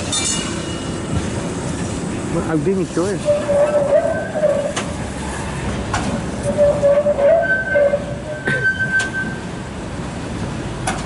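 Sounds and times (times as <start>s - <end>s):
tram wheels squealing: 0.0s - 2.0s, 2.9s - 9.7s
wheels clicking over rail joints: 0.0s - 9.5s, 10.4s - 11.0s
high steady squeal: 3.0s - 4.8s, 6.4s - 9.5s.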